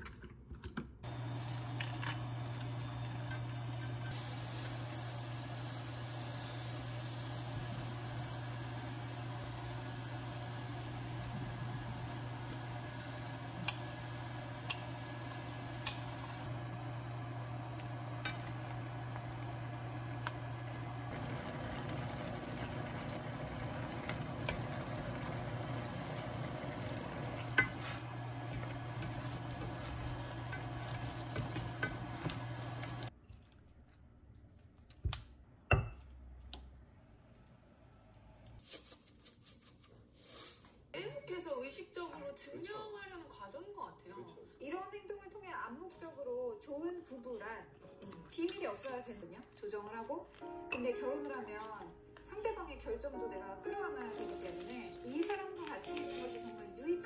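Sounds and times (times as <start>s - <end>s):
food sizzling in a pan: 1.0s - 33.2s.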